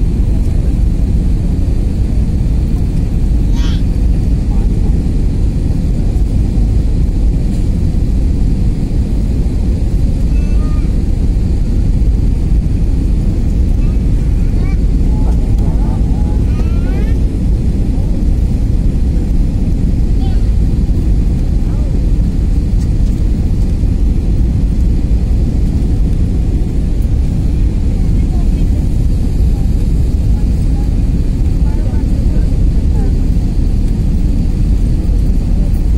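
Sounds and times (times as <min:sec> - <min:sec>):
airliner cabin roar: 0:00.0 - 0:35.9.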